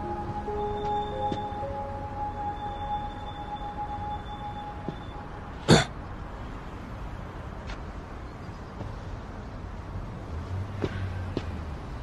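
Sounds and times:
person clearing throat: 0:05.6 - 0:06.0.

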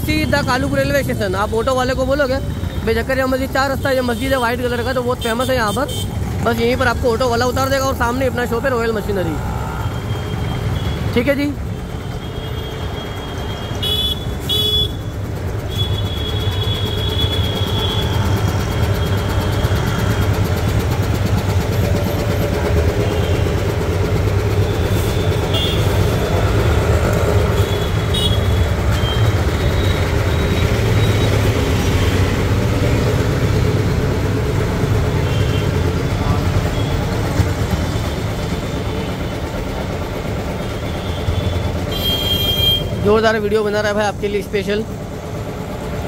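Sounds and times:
street traffic drone: 0:00.0 - 0:46.0
car horn toots: 0:13.7 - 0:15.0, 0:25.1 - 0:26.0, 0:27.6 - 0:30.0, 0:41.0 - 0:43.0.

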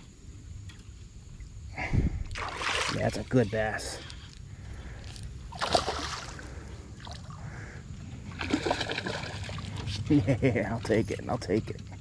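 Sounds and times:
fish splashing at water surface: 0:05.5 - 0:06.4.

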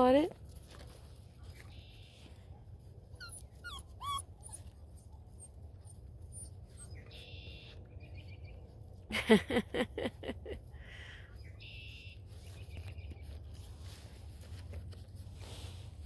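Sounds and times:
small birds chirping: 0:06.7 - 0:08.9, 0:11.0 - 0:13.6.

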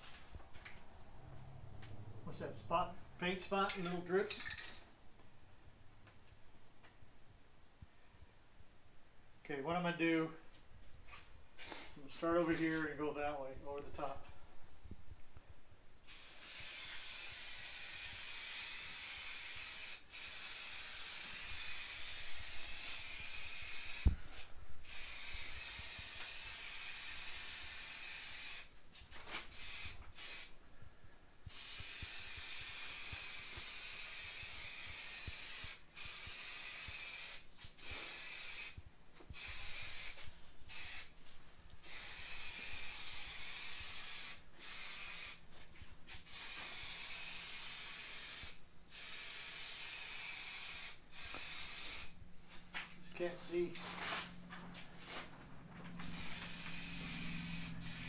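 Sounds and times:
spray-paint can hissing: 0:16.0 - 0:24.2, 0:24.8 - 0:28.7, 0:29.3 - 0:30.6, 0:31.5 - 0:41.2, 0:41.8 - 0:45.4, 0:46.1 - 0:52.2, 0:56.0 - 0:58.0.

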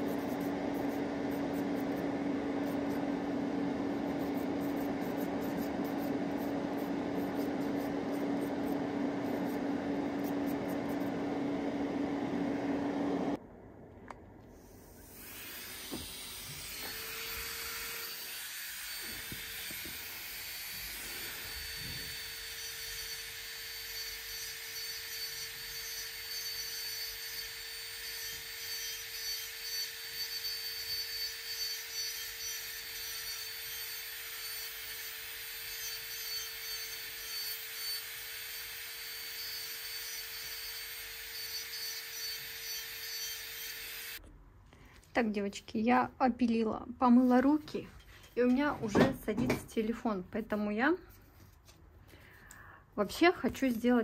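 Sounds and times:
electric nail drill whirring: 0:00.0 - 0:13.4, 0:15.0 - 0:44.2.

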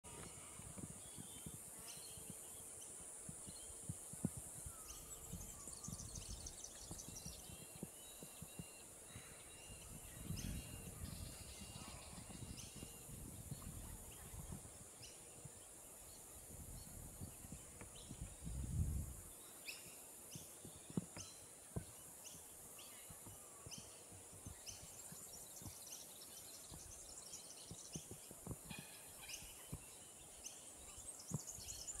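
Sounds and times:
birds chirping: 0:00.1 - 0:18.4
steady high hiss: 0:00.1 - 0:32.0.

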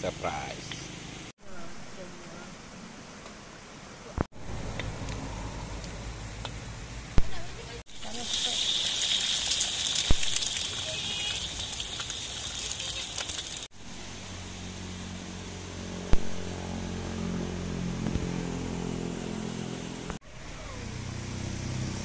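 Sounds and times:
eggs sizzling in oil: 0:07.9 - 0:13.7.

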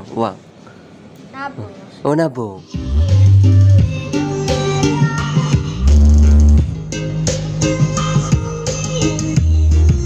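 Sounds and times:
deep bass: 0:05.6 - 0:07.3.

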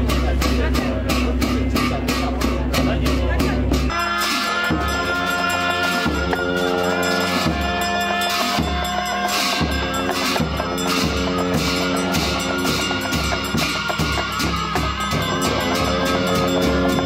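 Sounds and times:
deep drum beats: 0:00.0 - 0:17.0
held chanting: 0:00.0 - 0:17.0
cymbal crashes: 0:03.9 - 0:17.0.

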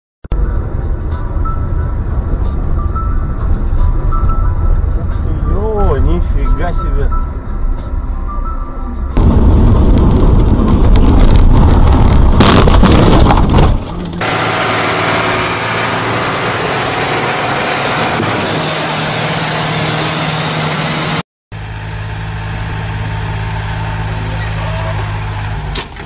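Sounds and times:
rough engine noise with clattering: 0:09.1 - 0:26.0
engine low hum: 0:13.8 - 0:26.0.

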